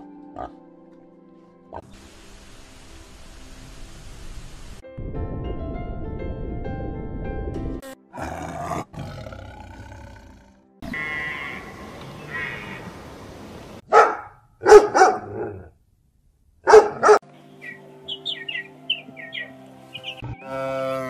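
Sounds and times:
background music: 0:00.0 - 0:12.6, 0:16.6 - 0:21.0
puppy barking: 0:13.9 - 0:15.6, 0:16.6 - 0:17.2.

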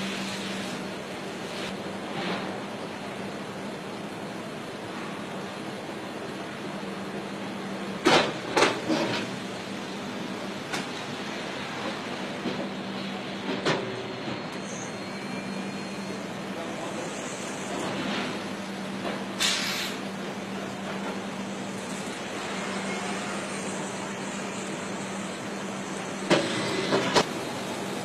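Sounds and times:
hissing air blast: 0:19.4 - 0:20.0.

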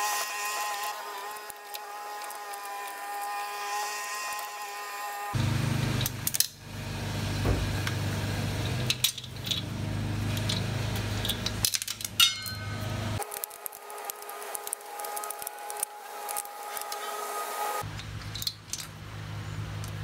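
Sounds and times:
metal clinks of wrench and nuts: 0:11.2 - 0:12.8.

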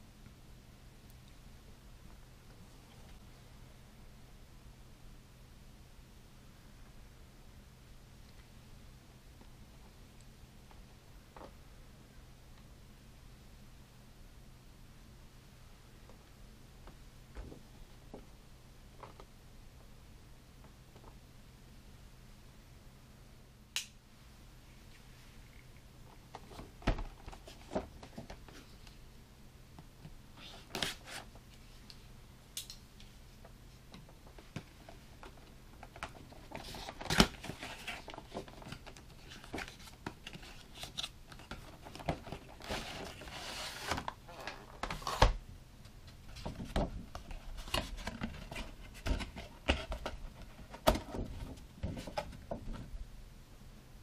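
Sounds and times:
cardboard flaps rustling: 0:46.3 - 0:52.9.

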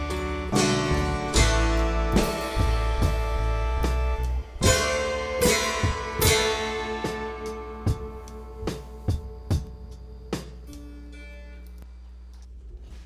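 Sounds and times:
drum beat: 0:00.0 - 0:10.9
guitar-led background music: 0:00.0 - 0:11.9.

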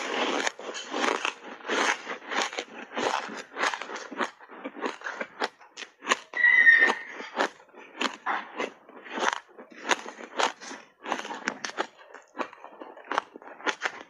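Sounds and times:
ice crunching between teeth: 0:00.0 - 0:14.0
high-pitched squeak: 0:06.4 - 0:07.3.

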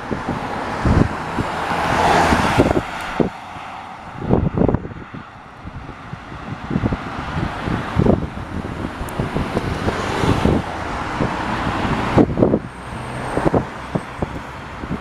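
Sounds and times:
road traffic passing: 0:00.0 - 0:15.0
wind buffeting microphone: 0:00.0 - 0:15.0.

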